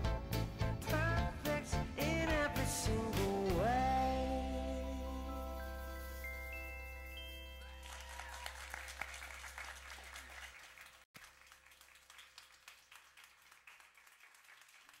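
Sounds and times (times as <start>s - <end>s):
audience applauding: 7.7s - 15.0s.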